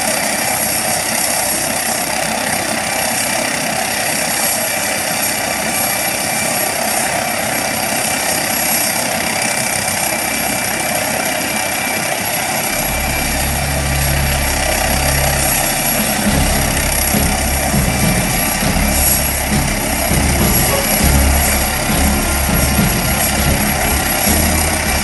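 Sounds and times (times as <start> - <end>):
helicopter engines idling: 0.2 - 25.0
low rumble: 12.7 - 25.0.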